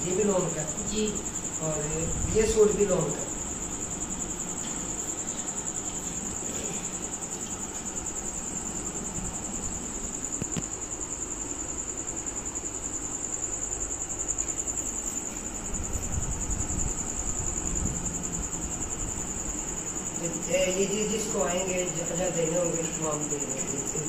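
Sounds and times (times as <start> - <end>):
high-pitched insect trill: 0.0 - 24.0.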